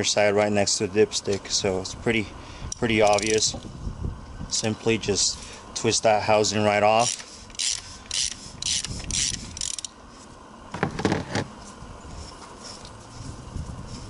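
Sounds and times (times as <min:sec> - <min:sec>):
socket ratchet clicking: 0:02.7 - 0:03.6, 0:07.0 - 0:09.9.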